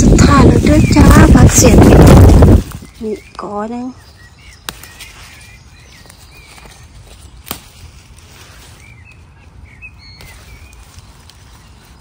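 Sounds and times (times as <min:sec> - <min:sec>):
steady low rumble: 0:00.0 - 0:02.9
small birds chirping: 0:00.0 - 0:12.0.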